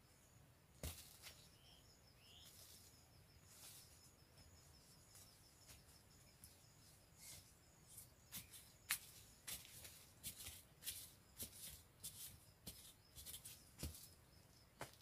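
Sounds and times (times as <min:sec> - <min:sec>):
bird chirps: 0:01.3 - 0:03.0.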